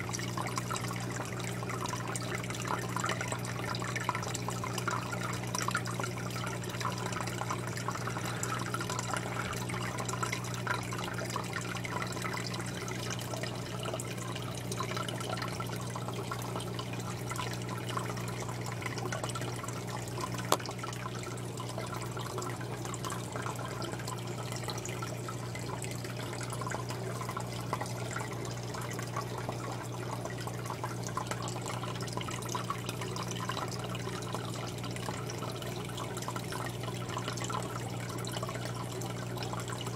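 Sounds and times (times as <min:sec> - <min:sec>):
aquarium water trickling and bubbling: 0:00.0 - 0:39.9
steady low hum: 0:00.4 - 0:15.9.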